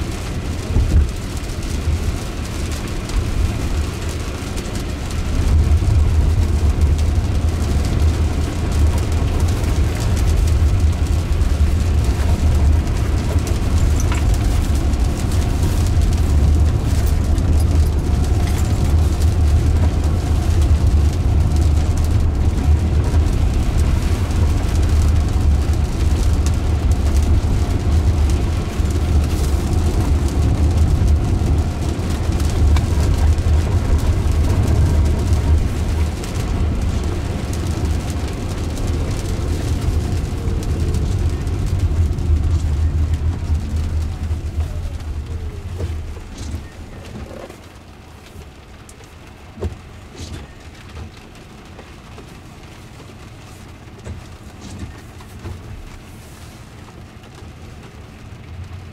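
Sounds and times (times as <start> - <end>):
road and tyre noise inside car: 0.0 - 58.9.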